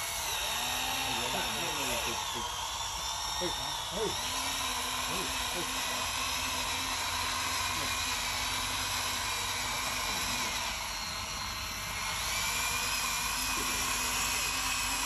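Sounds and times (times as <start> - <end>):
electric motors whining: 0.0 - 15.0.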